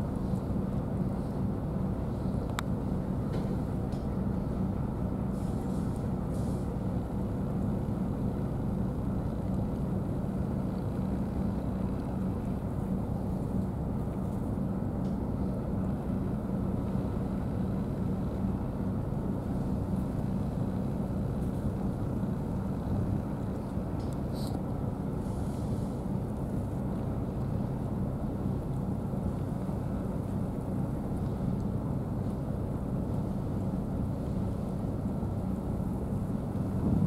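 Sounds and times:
low engine drone: 0.0s - 37.0s.

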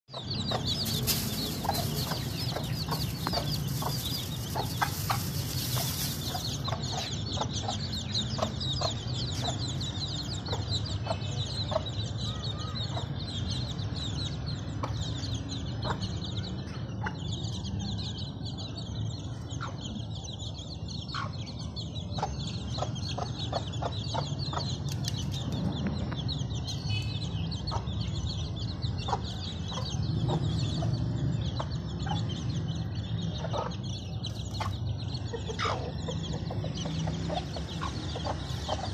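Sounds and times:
chicks peeping: 0.1s - 38.9s
hen clucking: 0.2s - 9.6s, 35.3s - 38.9s.

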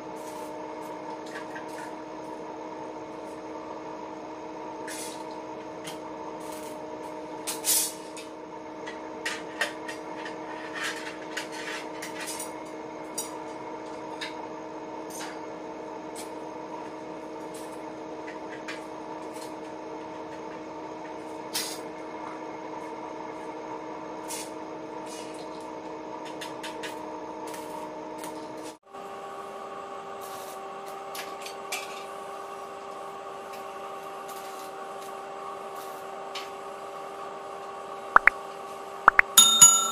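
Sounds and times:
metallic clinks of steel bars: 39.3s - 39.9s.

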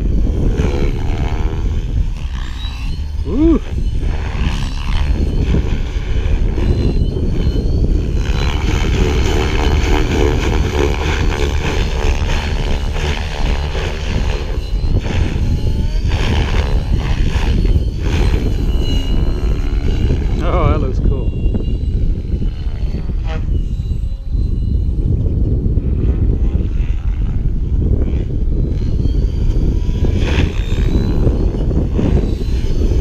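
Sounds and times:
heavy low rumble: 0.0s - 33.0s
rc helicopter rotor whine: 0.0s - 33.0s.

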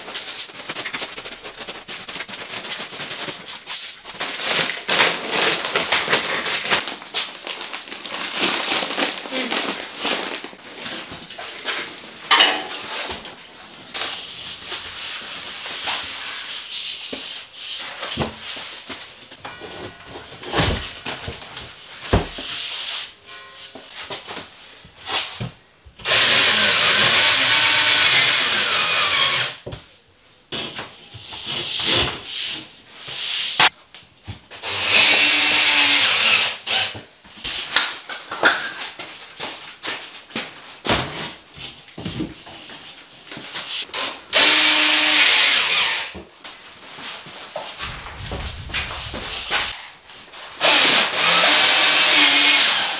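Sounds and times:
power tool running: 50.6s - 52.9s.

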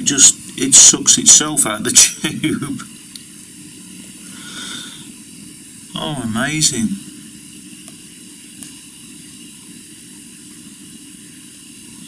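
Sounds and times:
background hiss: 0.0s - 12.0s
faint low hum: 5.8s - 7.7s.

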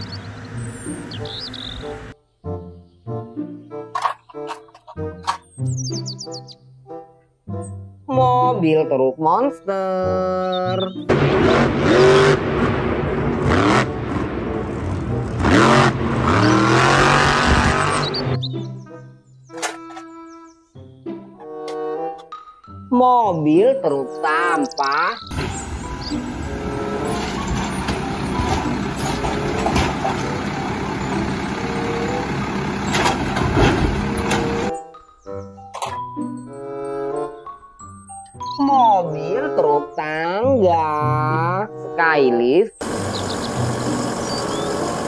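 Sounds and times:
truck engine revving hard: 11.1s - 18.4s, 25.3s - 34.7s, 42.8s - 45.0s
cart clunking into hopper: 25.3s - 34.7s.

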